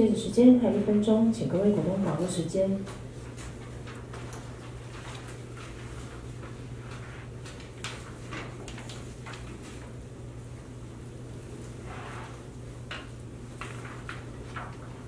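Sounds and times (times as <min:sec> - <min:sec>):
steady low hum: 0:00.0 - 0:15.0
papers rustling and knocking: 0:01.7 - 0:10.0, 0:12.8 - 0:15.0.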